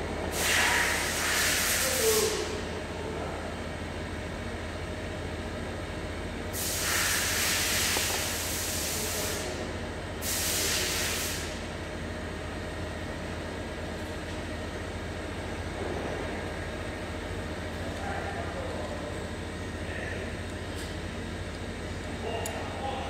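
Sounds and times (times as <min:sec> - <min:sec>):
low mechanical hum: 0:00.0 - 0:23.0
loud bursts of hiss: 0:00.3 - 0:02.5, 0:06.5 - 0:09.6, 0:10.2 - 0:11.6.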